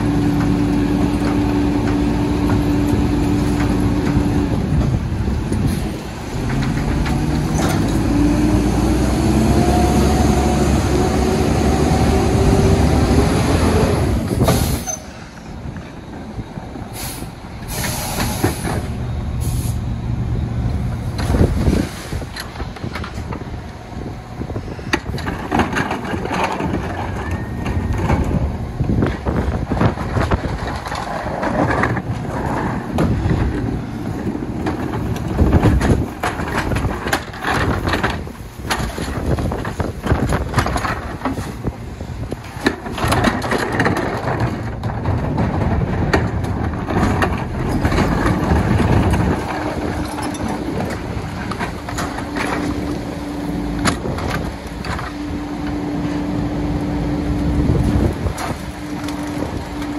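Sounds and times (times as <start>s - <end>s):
trash knocking and cracking: 24.4s - 56.3s, 57.5s - 59.9s
truck engine running: 43.9s - 59.9s.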